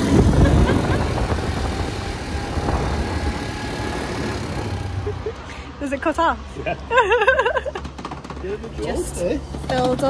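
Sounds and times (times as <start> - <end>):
wind on microphone: 0.0 - 5.0
quad bike engine running: 0.0 - 10.0.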